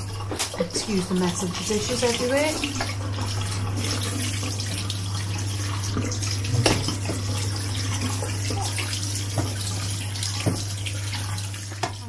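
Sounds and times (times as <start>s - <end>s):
steady low hum: 0.0s - 11.0s
tap water running onto rice: 0.0s - 12.0s.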